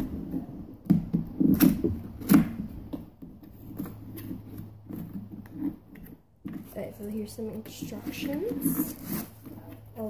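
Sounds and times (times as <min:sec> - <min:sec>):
cardboard box rubbing and scraping: 0:00.0 - 0:10.0.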